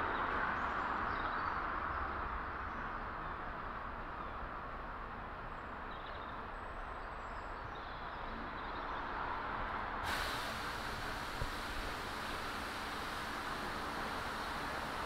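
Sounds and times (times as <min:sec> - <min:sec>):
bright hiss: 0:10.1 - 0:15.0
distant locomotive rumble: 0:10.1 - 0:15.0
low hiss: 0:10.1 - 0:15.0.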